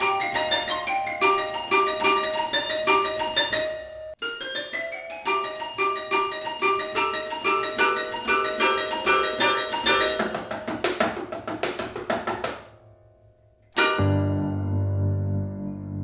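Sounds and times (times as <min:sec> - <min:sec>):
toy piano music: 0:00.0 - 0:10.5, 0:13.8 - 0:14.6.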